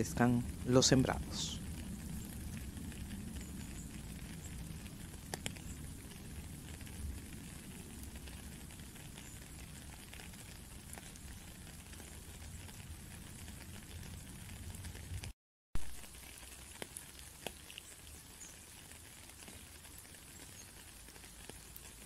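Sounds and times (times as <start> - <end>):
faint hissing and crackling: 0.0 - 22.0.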